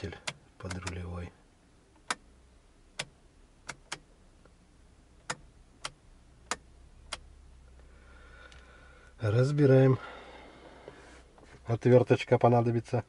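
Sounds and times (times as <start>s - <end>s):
turn signal switch clicks: 0.2s - 1.1s, 1.9s - 2.3s, 2.9s - 4.6s, 5.2s - 7.3s.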